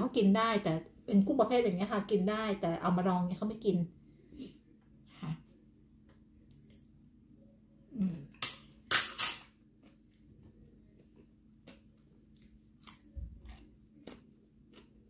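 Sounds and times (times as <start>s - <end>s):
person eating: 9.4s - 15.0s.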